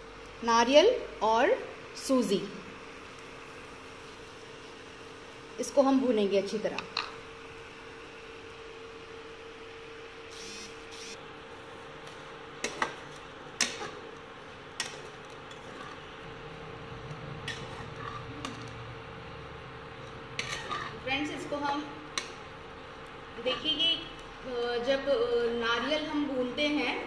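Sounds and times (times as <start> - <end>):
steady hum: 0.0 - 27.0
spatula scraping in wok: 14.8 - 18.8, 20.1 - 21.5.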